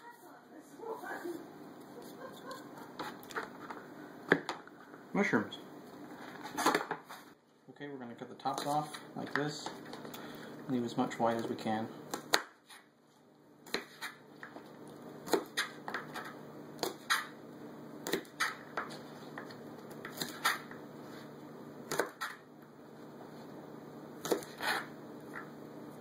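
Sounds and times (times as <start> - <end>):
knife chopping on plastic board: 13.7 - 14.2, 18.0 - 18.9, 21.9 - 22.4, 24.2 - 24.8.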